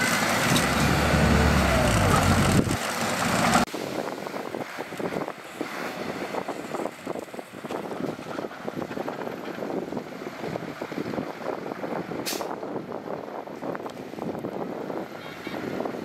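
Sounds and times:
heavy diesel equipment running: 0:00.0 - 0:03.7.

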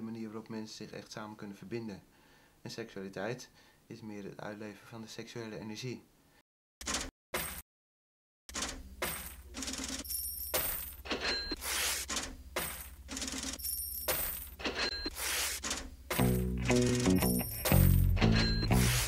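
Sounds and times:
clinking beat hits: 0:16.2 - 0:18.9.

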